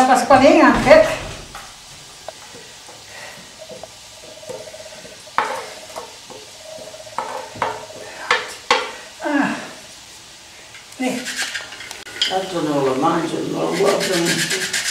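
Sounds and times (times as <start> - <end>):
spatula scraping a tray: 13.6 - 14.9.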